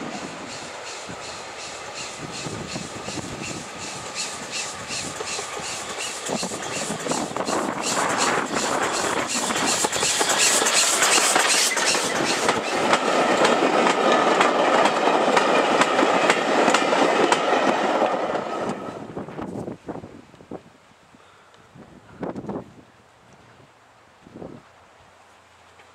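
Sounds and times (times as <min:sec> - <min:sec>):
steam locomotive exhaust beats: 0:00.0 - 0:19.6
wheels clicking over rail joints: 0:01.5 - 0:18.8.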